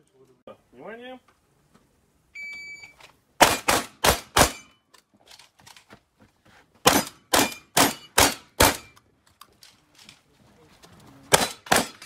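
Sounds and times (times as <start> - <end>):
shotgun shots: 3.4 - 4.7, 6.8 - 8.9, 11.3 - 12.0.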